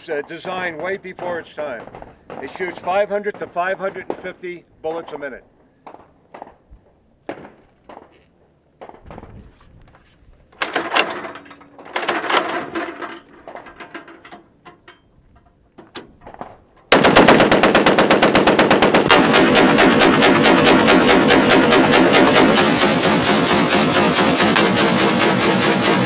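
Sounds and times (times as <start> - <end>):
metal clicking and rattling: 10.5 - 16.9
heavy machine gun automatic fire: 16.9 - 26.0.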